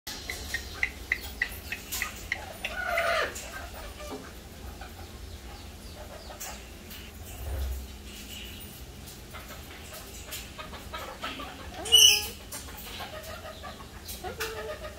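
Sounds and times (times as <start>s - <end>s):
cockatoo drawn-out call: 11.8s - 12.4s.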